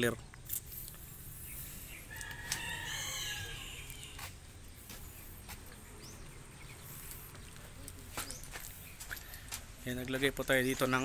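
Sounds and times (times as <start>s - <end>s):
rooster crowing: 2.1s - 4.2s.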